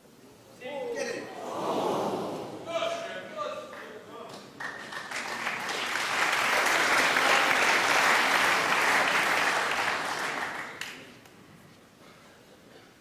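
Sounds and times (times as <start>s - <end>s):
audience applauding: 4.6s - 11.1s.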